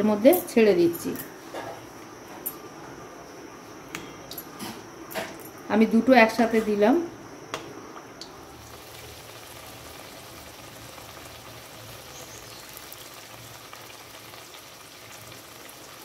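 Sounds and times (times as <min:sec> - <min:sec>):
deep-frying bubbling sizzle: 0:08.2 - 0:16.0.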